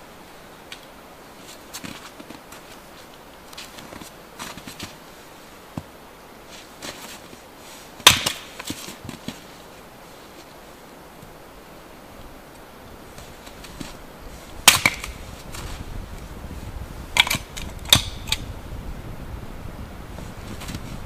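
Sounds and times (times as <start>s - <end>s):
hatchet splitting wood: 8.0s - 8.8s, 14.6s - 15.2s, 17.2s - 18.4s.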